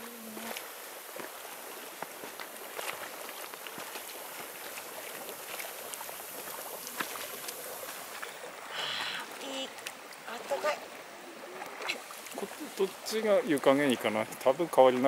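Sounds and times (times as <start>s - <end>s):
hot spring water bubbling: 0.0s - 15.0s.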